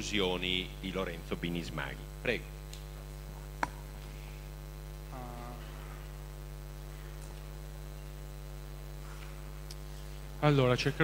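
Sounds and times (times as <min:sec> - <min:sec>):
electrical mains hum: 0:00.0 - 0:11.0
faint voice: 0:05.1 - 0:06.0.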